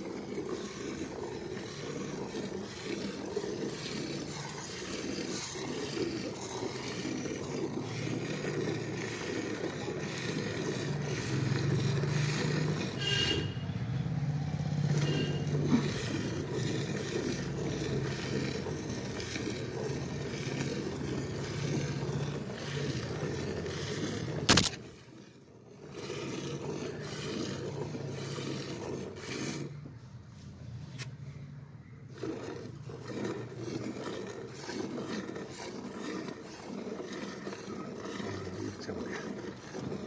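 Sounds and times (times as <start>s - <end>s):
milk squirting into steel bucket: 0.0s - 13.6s, 14.7s - 30.0s, 32.1s - 40.0s.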